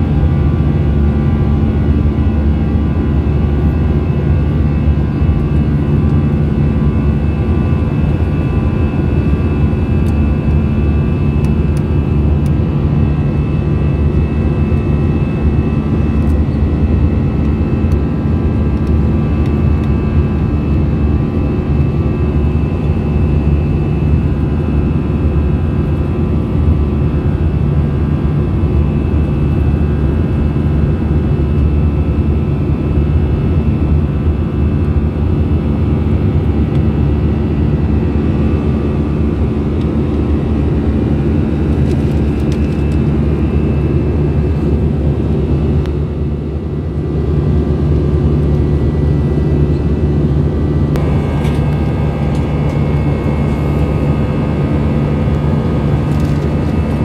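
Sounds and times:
engine whine: 0.0 - 57.0
jet engine drone: 0.0 - 57.0
low rumble: 47.6 - 57.0.

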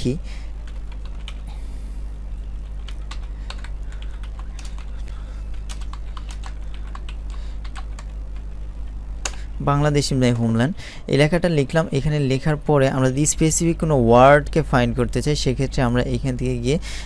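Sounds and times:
low hum: 0.0 - 17.0
computer keyboard typing: 0.6 - 1.5, 2.6 - 8.6.

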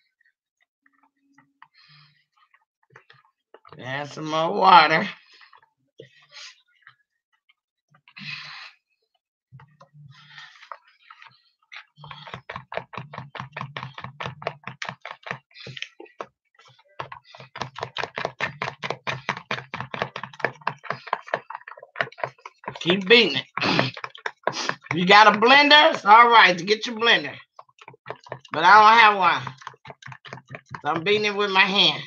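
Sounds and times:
batter beaten in plastic tub: 11.9 - 32.0.

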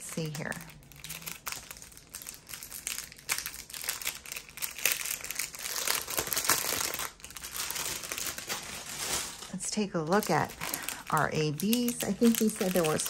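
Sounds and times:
thin plastic bags crinkling: 0.0 - 13.0.

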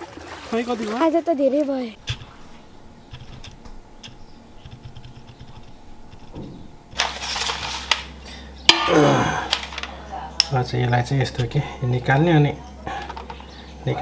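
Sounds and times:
shells clattering on metal tray: 7.0 - 10.6.

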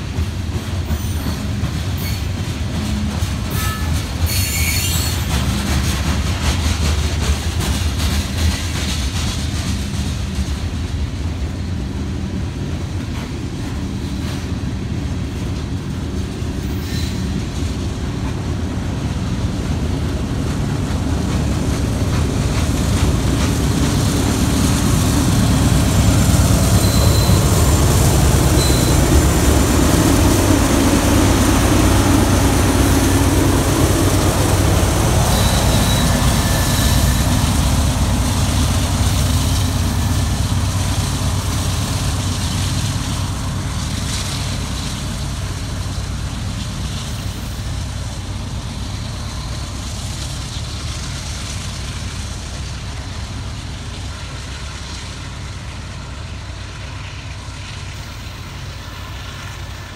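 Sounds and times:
diesel locomotive engine: 0.0 - 59.9
train wheels rumbling on rails: 0.0 - 59.9
high squeaks: 28.6 - 29.1.

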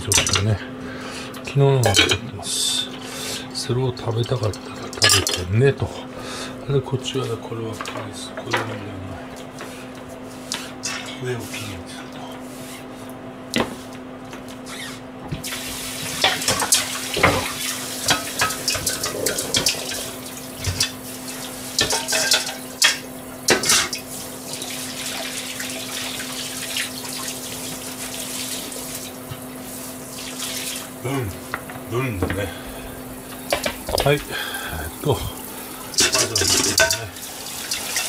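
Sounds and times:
crockery clinking: 36.0 - 37.1.

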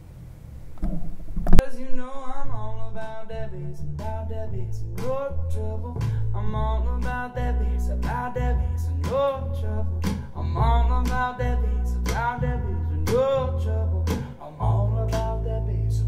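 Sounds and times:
plucked upright bass: 2.5 - 16.0
female vocals: 10.4 - 11.7.

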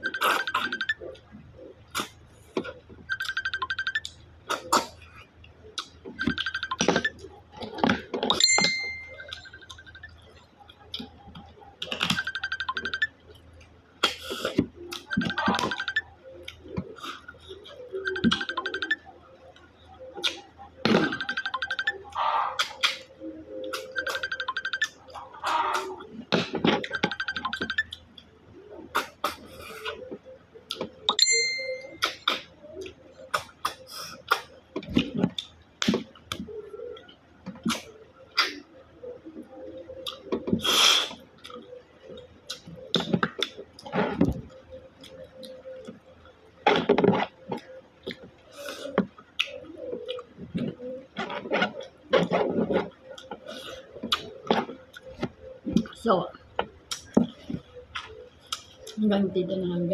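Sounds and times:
ringing clink: 31.2 - 32.0
wet squeaky sucking slurps: 40.6 - 41.2.

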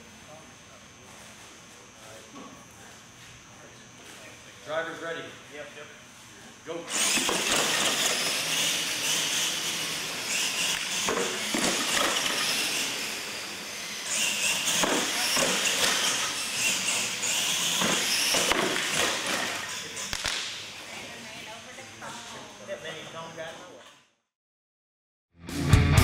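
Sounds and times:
toy truck motors whirring: 6.9 - 20.8.

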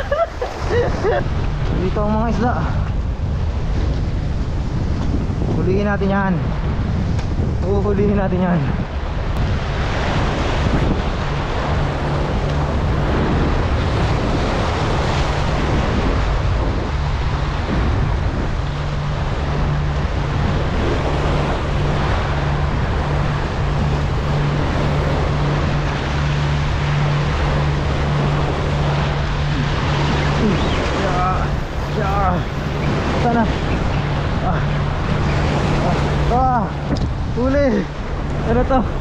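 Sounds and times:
sea waves: 0.0 - 39.0
wind buffeting microphone: 0.0 - 39.0
steady low hum: 8.6 - 39.0.

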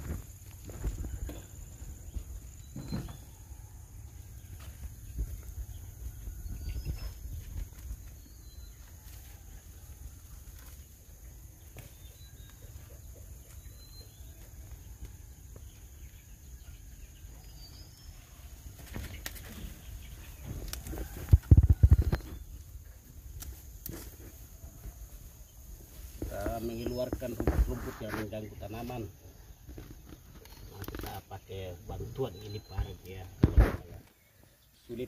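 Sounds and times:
faint bird chirps: 0.1 - 22.7, 24.6 - 35.0.

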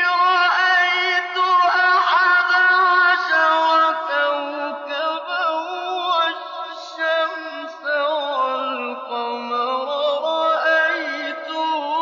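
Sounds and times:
man chanting melismatically: 0.0 - 12.0.

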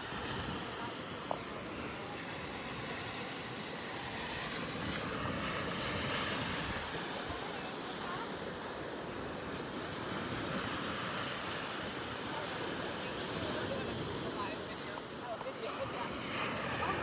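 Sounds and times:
wind on microphone: 0.0 - 8.3
waves washing onto beach: 0.0 - 17.0.

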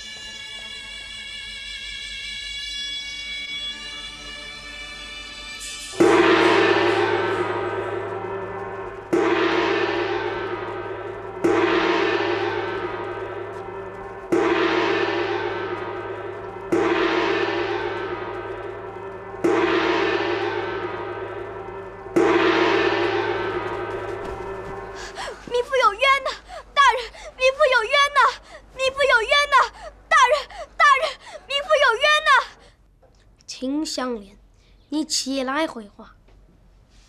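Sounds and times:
large gong strikes: 5.9 - 25.2.

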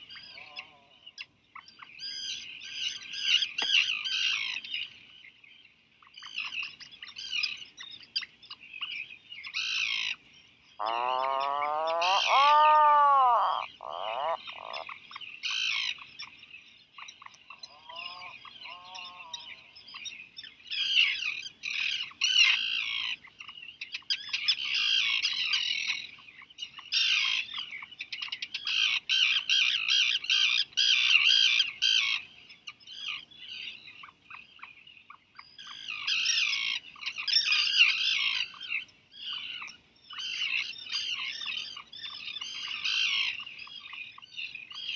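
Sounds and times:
low wavering bird call: 10.8 - 14.8
high chattering seabird calls: 10.8 - 14.9.

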